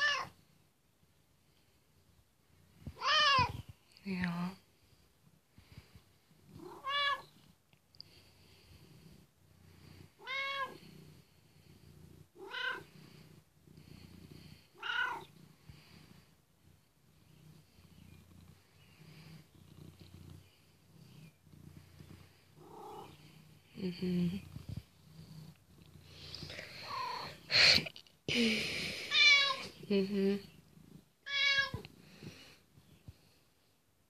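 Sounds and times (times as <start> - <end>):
cat meowing: 0.0 - 0.3, 3.0 - 3.6, 6.6 - 7.3, 10.2 - 10.8, 12.4 - 12.8, 14.8 - 15.3, 29.1 - 29.7, 31.2 - 31.8
cat purring: 0.0 - 33.8.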